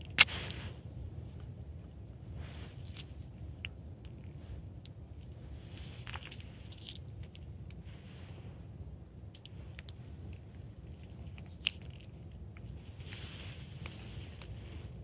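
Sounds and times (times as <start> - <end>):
low steady rumble: 0.0 - 15.0
cat crunching dry kibble: 5.2 - 7.7, 9.3 - 14.5.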